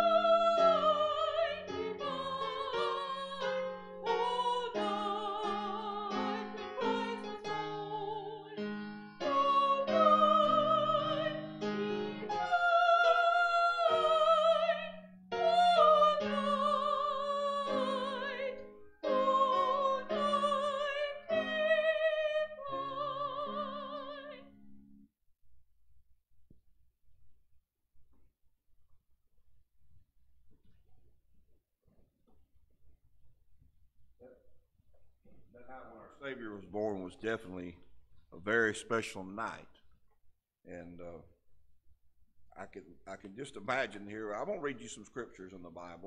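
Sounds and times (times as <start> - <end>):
woman singing with vibrato: 0.0 - 24.5
piano accompaniment: 0.0 - 25.1.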